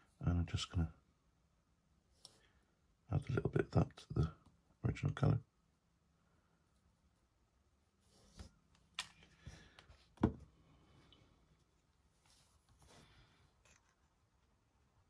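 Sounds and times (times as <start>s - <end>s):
soft rubbing and rustling: 6.4s - 14.8s
light knocks and taps: 10.1s - 10.5s.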